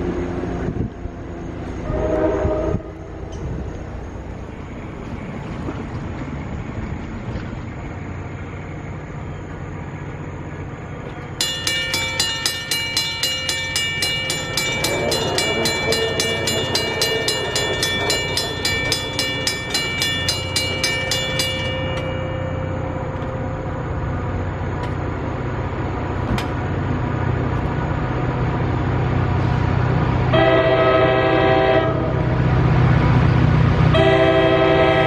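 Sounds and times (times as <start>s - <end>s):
train rumble: 0.0s - 35.0s
railroad crossing warning bell: 11.0s - 26.2s, 30.3s - 32.8s, 33.9s - 35.0s.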